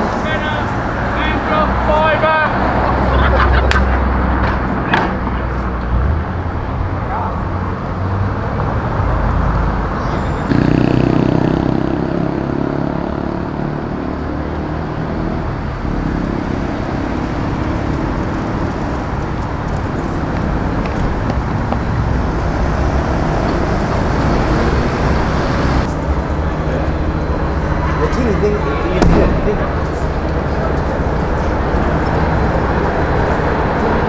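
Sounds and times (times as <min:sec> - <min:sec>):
tyres on the road: 0:00.0 - 0:34.0
vehicle engines running: 0:00.0 - 0:34.0.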